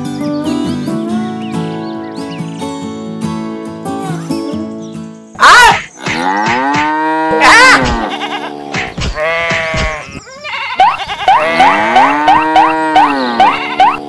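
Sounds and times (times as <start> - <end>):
sheep bleating: 6.1 - 14.0.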